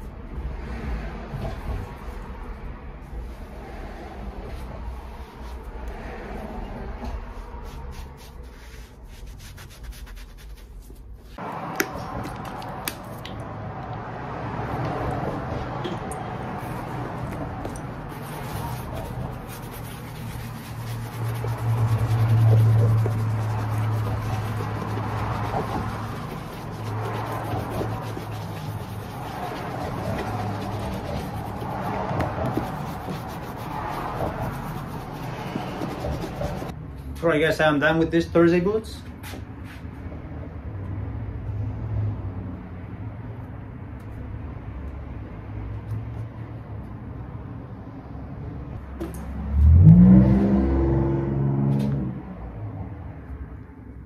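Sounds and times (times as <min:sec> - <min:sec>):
brush swishing on leather: 0:04.5 - 0:05.8, 0:07.0 - 0:13.2, 0:16.5 - 0:36.8
rubber sole sanding on wheel: 0:07.2 - 0:13.2, 0:16.5 - 0:36.8
brighter scrubbing: 0:16.6 - 0:36.7.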